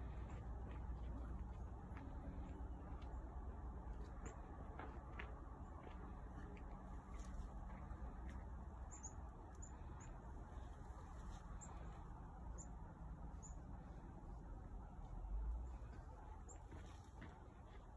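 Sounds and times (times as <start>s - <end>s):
small bird chirping: 8.8s - 10.2s, 13.4s - 13.6s.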